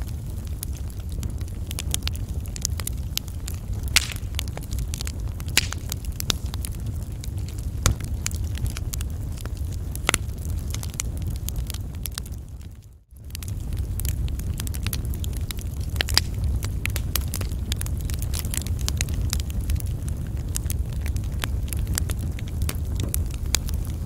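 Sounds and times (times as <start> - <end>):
low rumble: 0.0 - 12.6
wood fire crackling and popping: 0.0 - 24.0.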